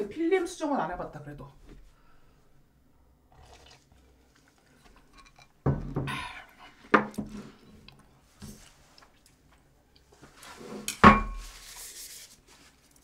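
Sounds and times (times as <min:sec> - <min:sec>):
tableware knocks: 0:10.9 - 0:11.4.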